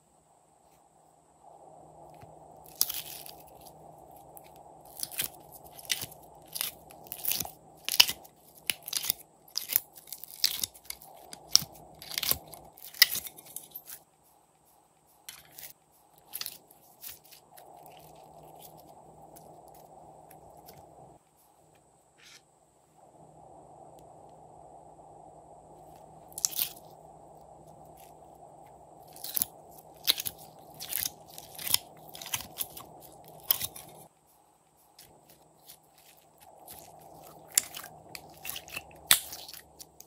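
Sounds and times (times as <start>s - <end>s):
slime crackling and clicking: 4.9s - 13.4s, 29.1s - 33.9s, 36.7s - 40.0s.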